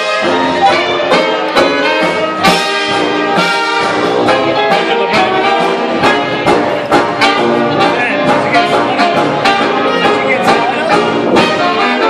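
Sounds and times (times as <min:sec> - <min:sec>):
jazz dance orchestra playing: 0:00.0 - 0:12.0.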